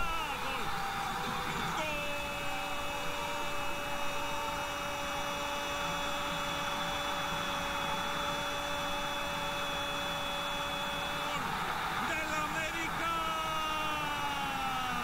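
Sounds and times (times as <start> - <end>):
commentator shouting goal: 0.0 - 0.8, 1.5 - 2.8, 11.2 - 15.0
stadium crowd roaring: 0.0 - 15.0.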